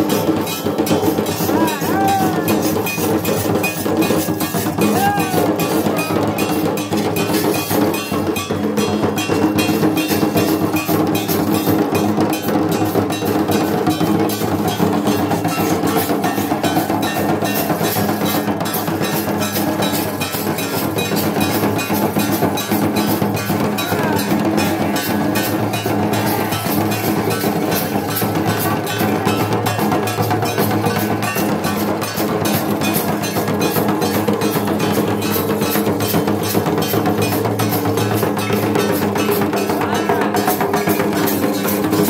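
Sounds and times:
hand cymbals clashing: 0.0s - 42.0s.

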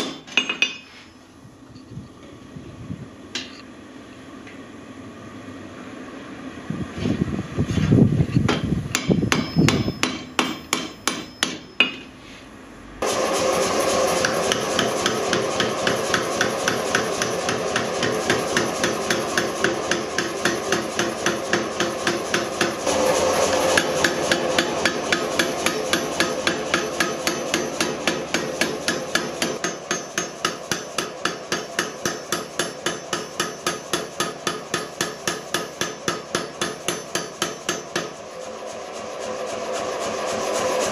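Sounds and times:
power hammer pounding: 8.5s - 12.0s, 13.0s - 38.2s
hammer blows on steel ringing: 9.0s - 12.1s.

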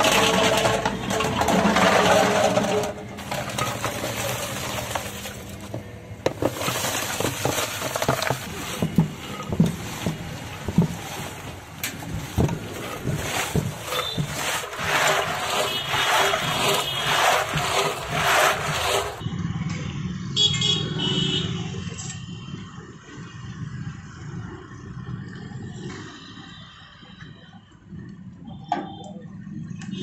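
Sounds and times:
ice chunks clunking and crunching: 0.0s - 19.2s
metal moulds clattering: 0.0s - 19.2s.

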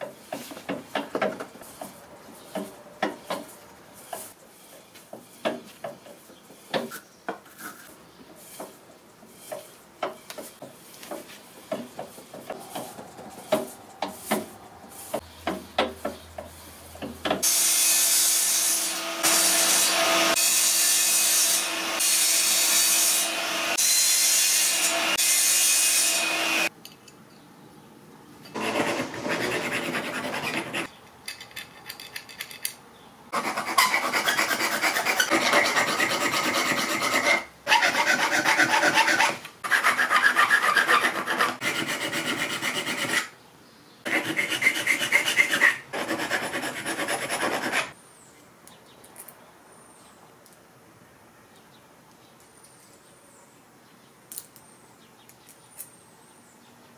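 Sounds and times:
mitre saw cutting metal: 17.4s - 26.7s, 28.5s - 30.9s, 33.4s - 43.3s, 44.1s - 48.0s
hand file rasping on metal: 28.6s - 30.9s, 33.3s - 43.3s, 44.1s - 48.0s.

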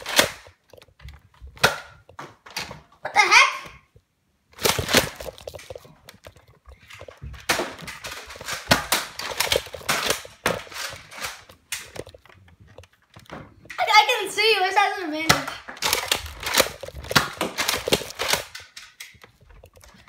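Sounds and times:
camera handling thumps and rustles: 4.6s - 13.7s.

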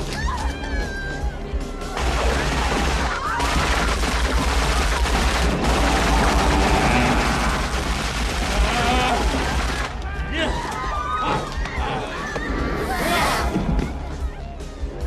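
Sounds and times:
heavy rapid gunfire: 2.0s - 10.0s.

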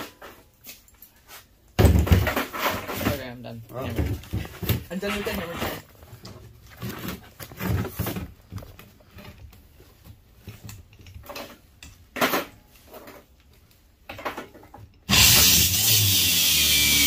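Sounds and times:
metal parts clanking on plastic lid: 10.5s - 13.4s.

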